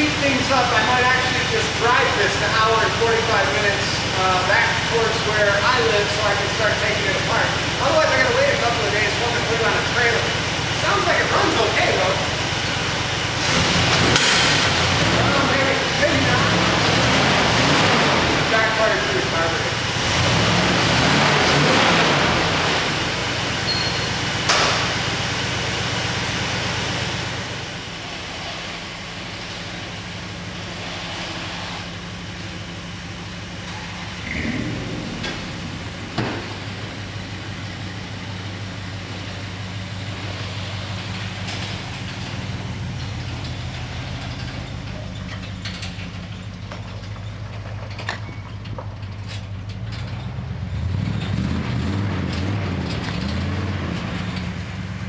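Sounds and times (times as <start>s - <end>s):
pickup truck engine idling: 0.0s - 21.2s, 21.9s - 51.0s
truck clunks: 13.6s - 15.2s, 23.6s - 25.3s, 31.9s - 54.8s.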